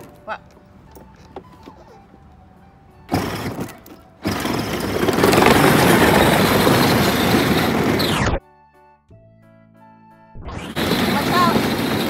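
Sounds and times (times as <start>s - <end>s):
ride-on toy driving over pavers: 3.0s - 8.4s, 10.6s - 12.0s.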